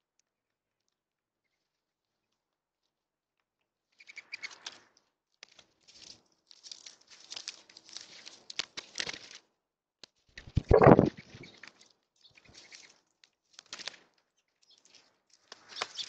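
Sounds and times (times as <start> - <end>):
birds pecking and scuffling: 5.6 - 9.4, 10.4 - 16.0
doves' wings flapping: 10.4 - 11.7, 15.5 - 16.0.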